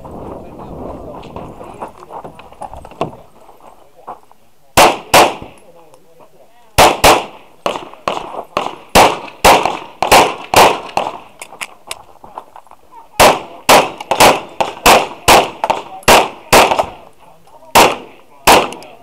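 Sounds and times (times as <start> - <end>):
pistol shots: 4.8 - 5.6, 6.8 - 11.6, 13.2 - 17.0, 17.7 - 19.0.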